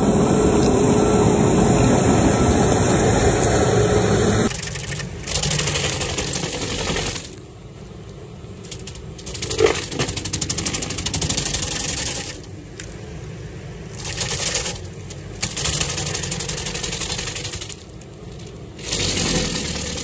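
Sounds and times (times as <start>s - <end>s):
stump grinder grinding wood: 0.0s - 7.4s, 18.8s - 20.0s
engine running: 0.0s - 20.0s.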